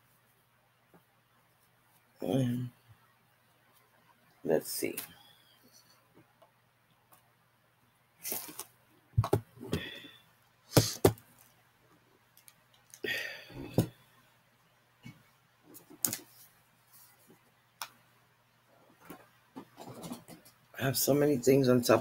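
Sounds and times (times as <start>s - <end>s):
makeup cases clicking and knocking: 9.2s - 9.5s.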